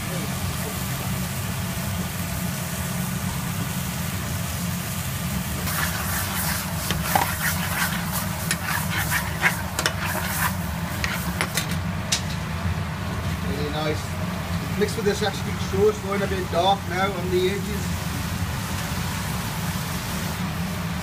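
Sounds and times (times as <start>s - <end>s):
steady low hum: 0.0s - 21.0s
metal spoon scraping a steel pan: 5.7s - 11.7s.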